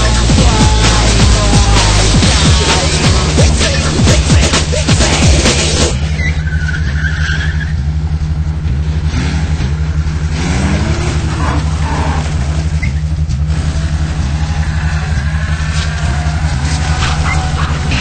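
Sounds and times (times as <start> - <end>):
car engine running: 0.0 - 18.0
tyre squeal: 6.0 - 8.1, 9.7 - 18.0.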